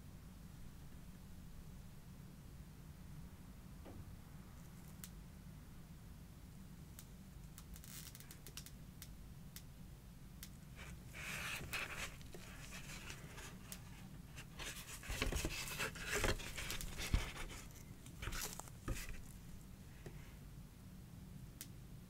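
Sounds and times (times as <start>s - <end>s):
packaging scratching and rustling: 10.8s - 19.6s.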